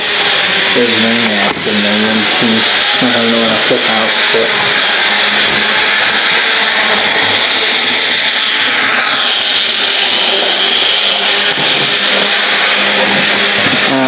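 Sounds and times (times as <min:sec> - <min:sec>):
model train whirring on track: 0:00.0 - 0:14.0.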